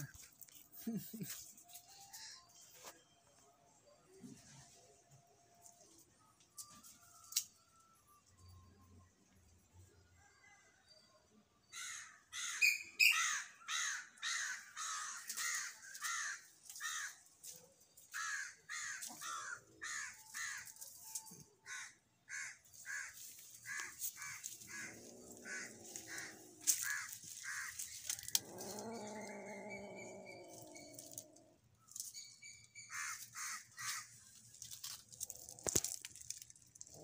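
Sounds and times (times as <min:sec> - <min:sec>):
crows cawing: 0:11.7 - 0:17.2, 0:18.1 - 0:20.7, 0:21.6 - 0:28.8, 0:32.9 - 0:34.1.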